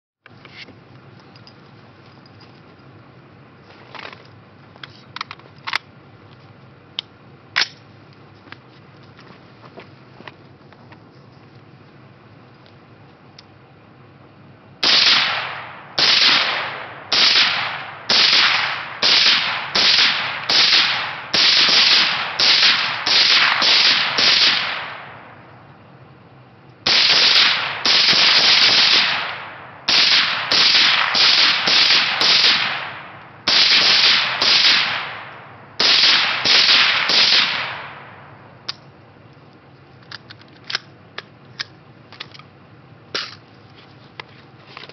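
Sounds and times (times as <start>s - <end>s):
suppressed rifle shots: 14.8s - 25.4s, 26.8s - 38.8s.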